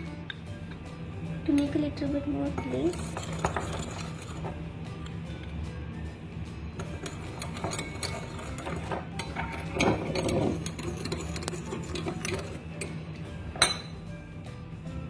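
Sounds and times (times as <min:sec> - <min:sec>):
spoon clinking on glass: 0:02.6 - 0:04.5, 0:06.8 - 0:13.0, 0:13.6 - 0:14.0
spoon scraping glass bowl: 0:02.6 - 0:04.6, 0:06.8 - 0:13.0.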